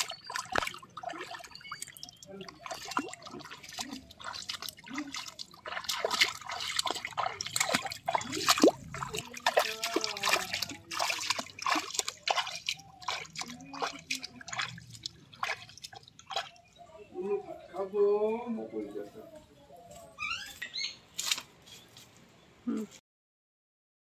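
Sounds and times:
feet splashing in muddy water: 0:00.0 - 0:16.8
water dripping: 0:00.0 - 0:16.8.

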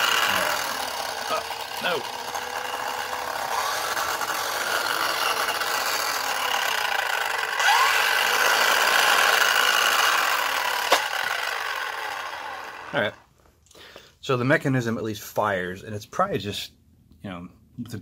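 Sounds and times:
small electric motor running: 0:00.0 - 0:13.2.

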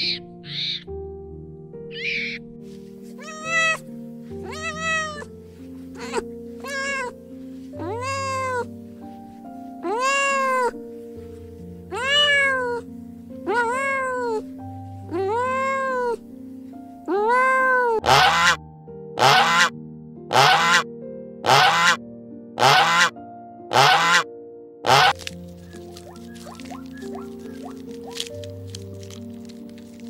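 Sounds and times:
cat meowing: 0:03.2 - 0:03.8, 0:04.4 - 0:05.3, 0:06.0 - 0:07.2, 0:07.8 - 0:08.7, 0:09.8 - 0:10.8, 0:11.9 - 0:12.8, 0:13.5 - 0:14.5, 0:15.1 - 0:16.2.

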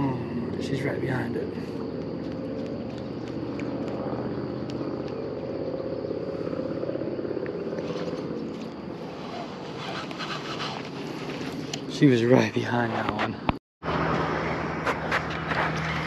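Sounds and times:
boat engine running: 0:00.0 - 0:12.4.

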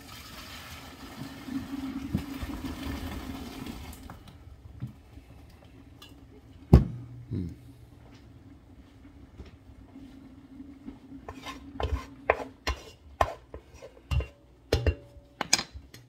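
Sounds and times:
water pouring from pot: 0:00.0 - 0:04.3
pot knocking: 0:14.0 - 0:15.6.

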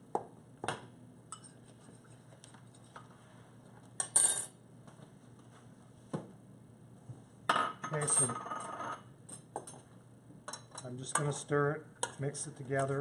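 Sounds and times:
dishes and utensils clinking: 0:01.3 - 0:02.1, 0:10.5 - 0:11.4.

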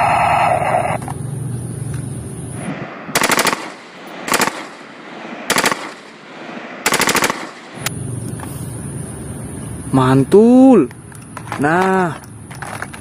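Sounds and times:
toy gun electronic firing effect: 0:03.1 - 0:04.8, 0:05.5 - 0:06.1, 0:06.9 - 0:07.9
automatic gunfire bursts: 0:03.1 - 0:07.8.

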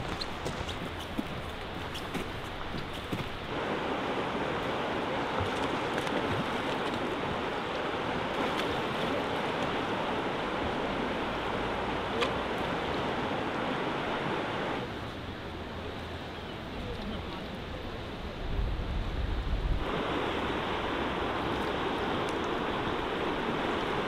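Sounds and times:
river water rushing: 0:00.0 - 0:18.4, 0:19.8 - 0:24.0.

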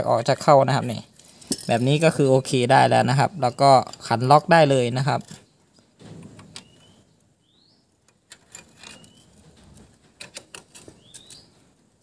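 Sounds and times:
bird chirps: 0:05.2 - 0:07.9, 0:08.8 - 0:09.4, 0:10.8 - 0:11.6.

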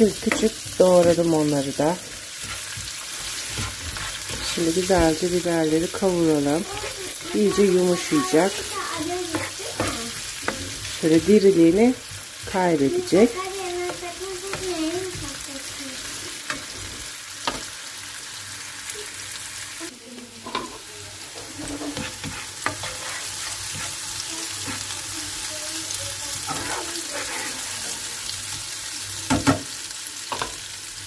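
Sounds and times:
spoon scraping pan: 0:00.0 - 0:17.7, 0:20.4 - 0:25.4, 0:26.3 - 0:28.3
peppers sizzling in frying pan: 0:00.0 - 0:31.0.

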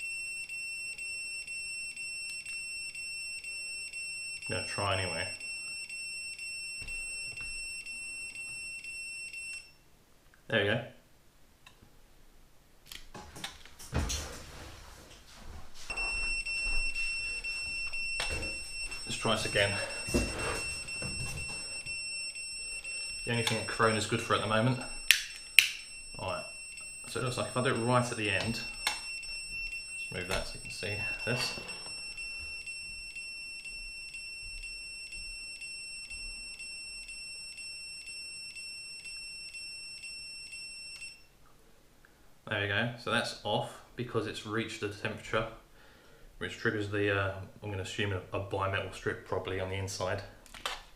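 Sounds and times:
voltage tester buzzer tone: 0:00.0 - 0:09.8, 0:15.9 - 0:41.3.

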